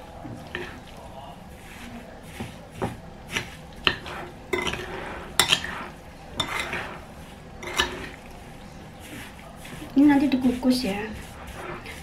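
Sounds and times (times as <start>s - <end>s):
metal spoon scraping ceramic bowl: 3.3s - 8.2s.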